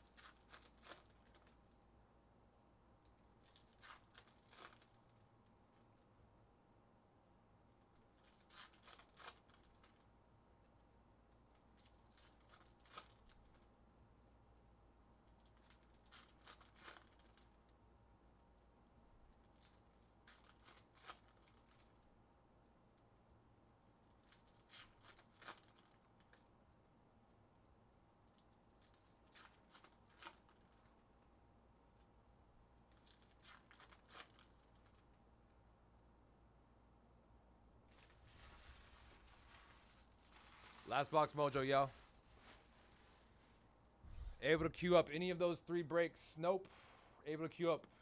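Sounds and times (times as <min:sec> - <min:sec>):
foil wrappers tearing and crinkling: 0:00.0 - 0:01.6, 0:03.4 - 0:05.2, 0:08.2 - 0:10.0, 0:11.7 - 0:13.6, 0:15.5 - 0:17.6, 0:19.4 - 0:22.0, 0:24.2 - 0:26.4, 0:28.7 - 0:30.9, 0:32.9 - 0:35.0, 0:37.9 - 0:43.4.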